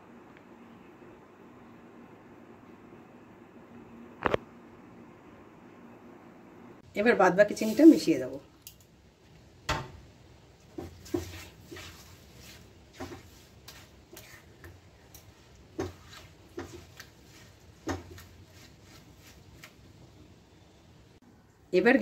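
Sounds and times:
spatula stirring in a pan: 0:10.5 - 0:20.1.

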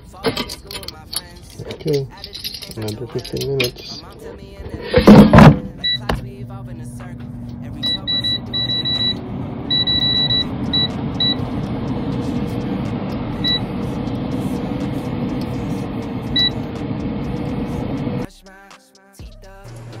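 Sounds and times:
air fryer fan humming: 0:04.2 - 0:18.3
touch panel beeps: 0:05.6 - 0:06.2, 0:07.7 - 0:11.6, 0:13.4 - 0:14.0, 0:16.2 - 0:16.8.

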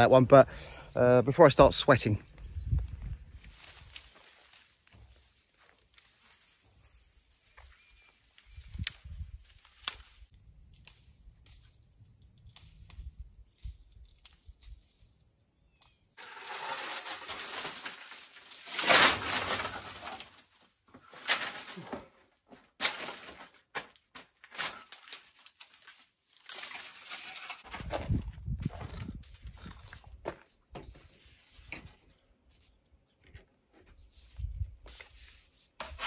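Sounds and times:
dry reed canes rustling: 0:03.3 - 0:36.0.

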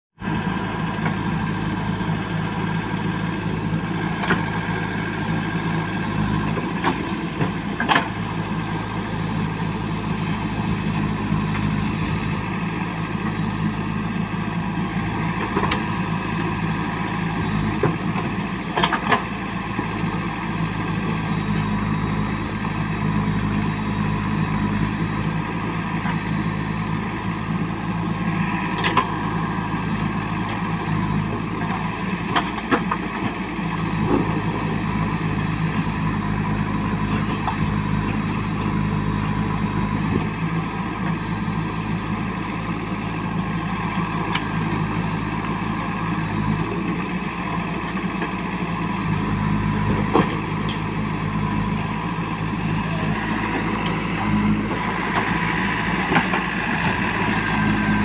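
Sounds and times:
diesel engine running: 0:00.1 - 0:58.0.

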